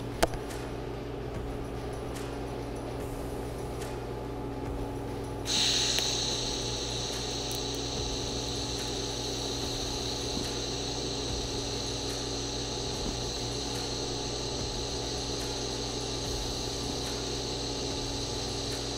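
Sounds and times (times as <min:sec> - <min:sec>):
low electrical hum: 0:00.0 - 0:18.9
welding arc hissing: 0:05.4 - 0:18.9.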